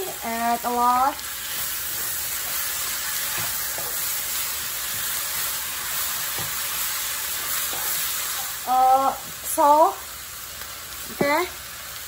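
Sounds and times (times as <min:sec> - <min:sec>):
meat sizzling in a wok: 0:00.0 - 0:12.0.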